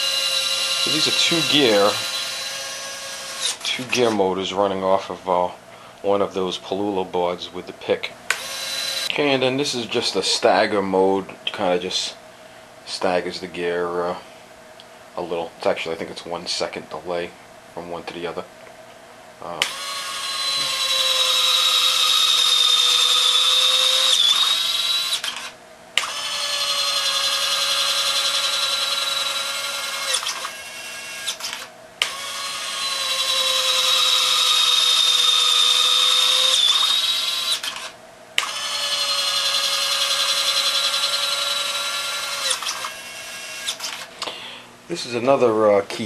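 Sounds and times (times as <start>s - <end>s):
small electric motors whining: 0.0s - 3.8s, 8.3s - 9.1s, 19.6s - 44.2s.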